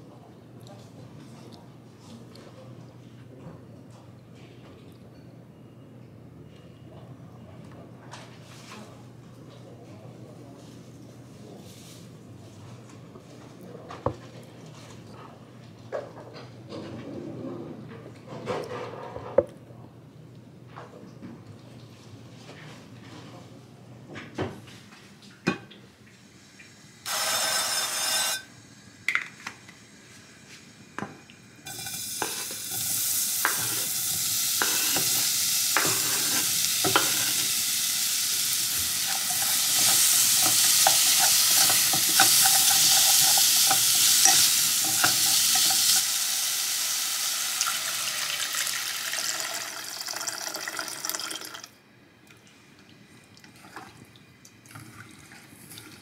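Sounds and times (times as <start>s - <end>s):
fish sizzling in a pot: 27.0s - 28.4s, 31.7s - 51.4s.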